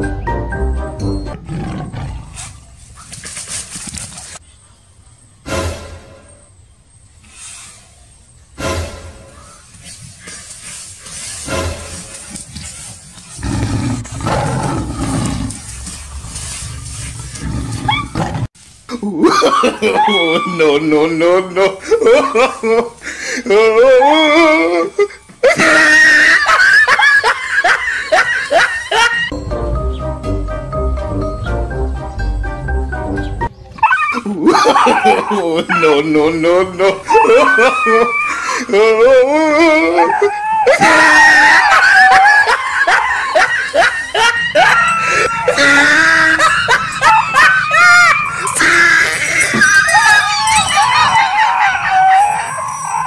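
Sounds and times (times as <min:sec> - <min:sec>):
person laughing: 0:18.9 - 0:29.3, 0:34.1 - 0:50.1
loud wavering screaming: 0:37.0 - 0:53.0.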